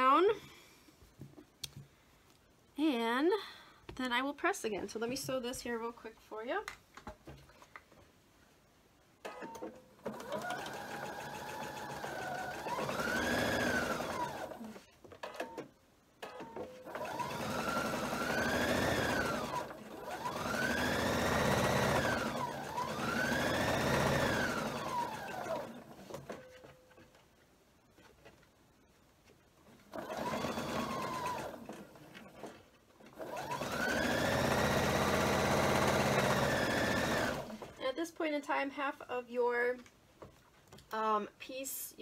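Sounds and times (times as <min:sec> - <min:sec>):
electric sewing machine stitching: 0:09.5 - 0:15.6, 0:16.2 - 0:26.4, 0:29.9 - 0:37.7.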